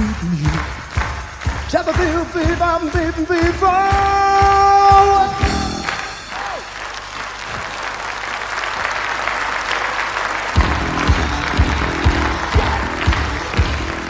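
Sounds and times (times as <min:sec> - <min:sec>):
music with steady drum beat: 0:00.0 - 0:06.8, 0:10.6 - 0:14.0
audience applauding: 0:00.0 - 0:14.0.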